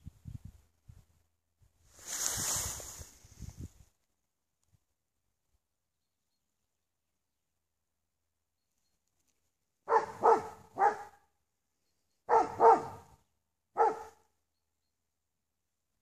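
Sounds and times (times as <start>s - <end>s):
dog barking deeply: 9.9s - 11.2s, 12.3s - 14.3s.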